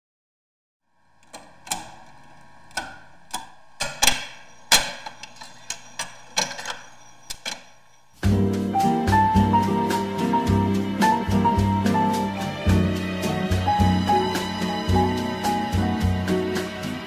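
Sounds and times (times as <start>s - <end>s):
record changer clicking and clunking: 1.2s - 7.6s
bossa nova music: 8.2s - 17.0s.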